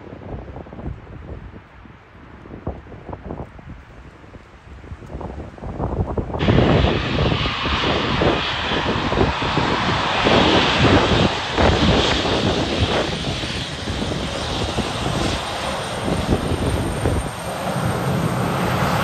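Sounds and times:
jet airliner taxiing: 0:03.9 - 0:19.0.

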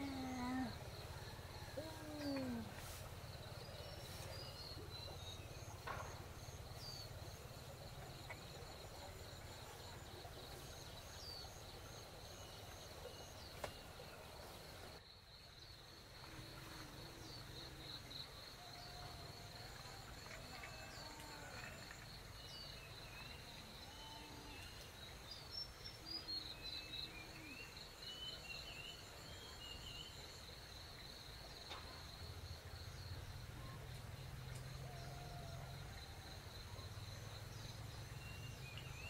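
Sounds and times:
baby whining: 0:00.0 - 0:00.8
insects trilling: 0:00.0 - 0:13.8, 0:14.4 - 0:39.0.

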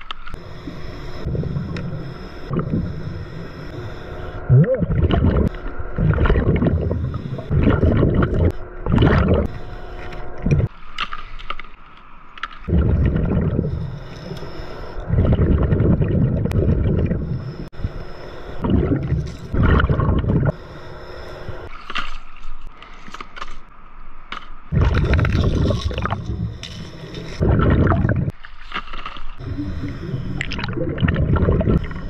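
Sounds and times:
scuba regulator bubbles underwater: 0:00.4 - 0:09.6, 0:12.7 - 0:18.0, 0:18.6 - 0:20.6, 0:24.7 - 0:28.3, 0:29.4 - 0:32.0.

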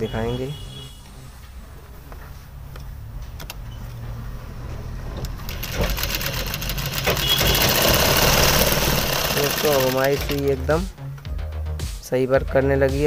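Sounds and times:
sewing machine stitching: 0:05.3 - 0:10.6.

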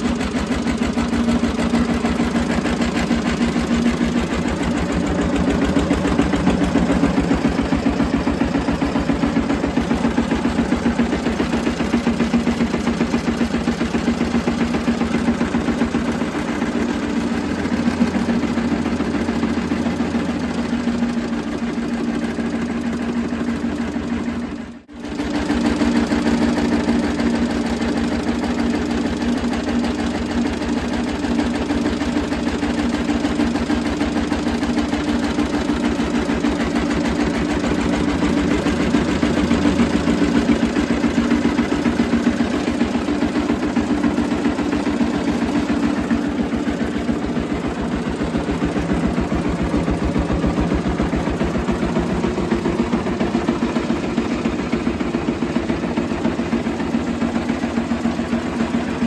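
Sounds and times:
diesel engine running steadily: 0:00.0 - 0:59.0.

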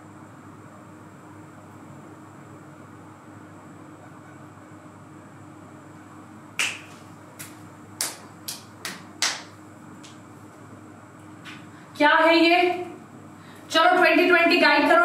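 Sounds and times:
faint room hum: 0:00.0 - 0:15.0
fingers snapping: 0:06.6 - 0:10.2.

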